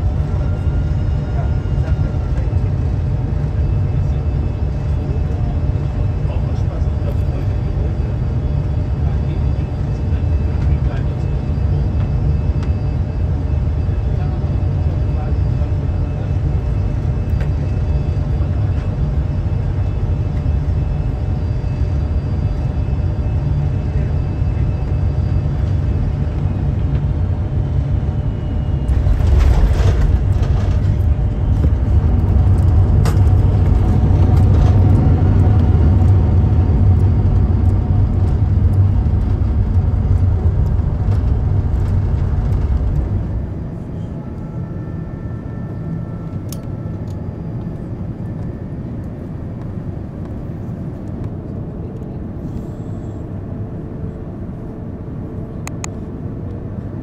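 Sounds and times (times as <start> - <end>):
aircraft cabin rumble: 0.0 - 57.0.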